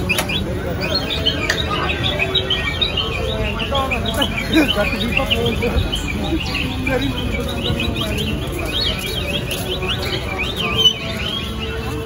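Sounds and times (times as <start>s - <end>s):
birds chirping: 0.0s - 12.0s
faint voices: 0.0s - 12.0s.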